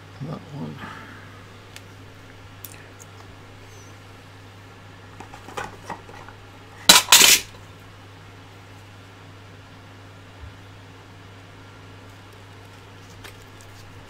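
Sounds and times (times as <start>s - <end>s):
metal tools clattering in tray: 6.9s - 7.5s.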